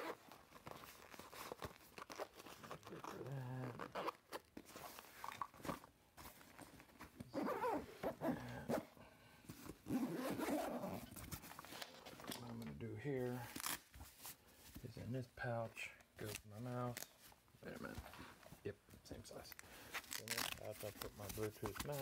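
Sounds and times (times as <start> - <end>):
zipper being pulled: 2.1 - 4.2, 7.3 - 8.9, 9.8 - 11.2.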